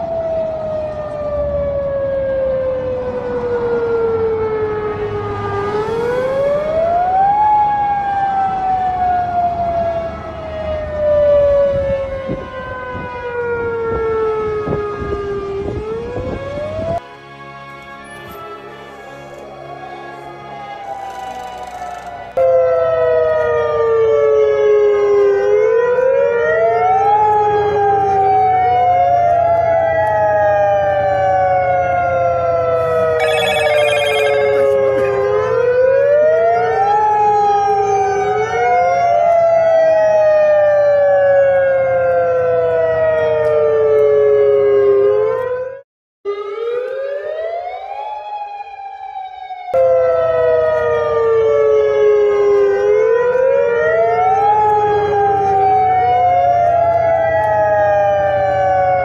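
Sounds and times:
warning sirens wailing: 0.0 - 17.4, 18.4 - 59.0.

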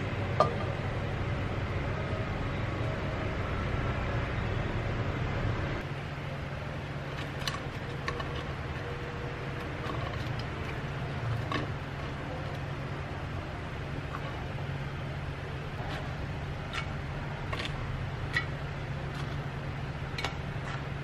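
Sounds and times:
bread toasting in a wok: 6.8 - 21.0.

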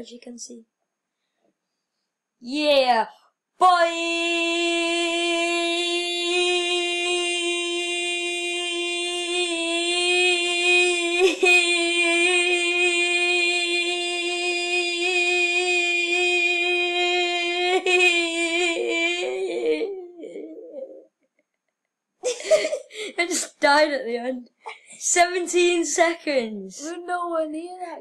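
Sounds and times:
boy holding long vocal note: 3.6 - 21.0.

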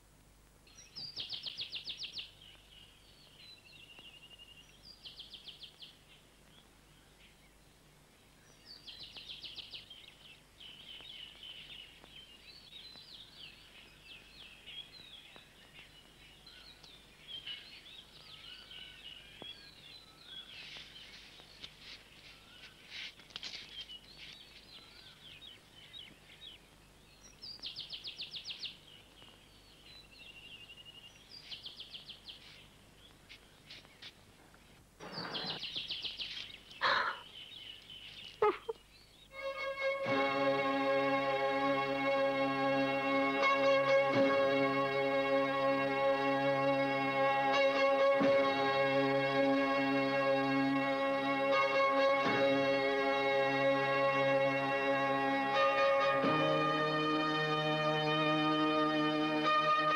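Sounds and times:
bird twittering calls: 0.7 - 7.6, 35.0 - 39.4
bird chirping trills: 0.7 - 34.1, 35.0 - 41.4.

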